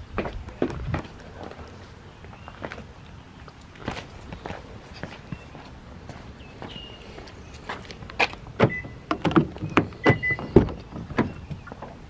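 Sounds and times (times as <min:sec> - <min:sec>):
short high beeps: 0:10.0 - 0:10.5.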